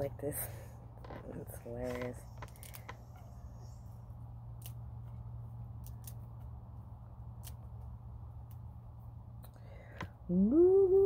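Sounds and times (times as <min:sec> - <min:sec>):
steady low hum: 0:00.0 - 0:11.0
petals snapping off: 0:05.8 - 0:06.2, 0:07.4 - 0:07.6.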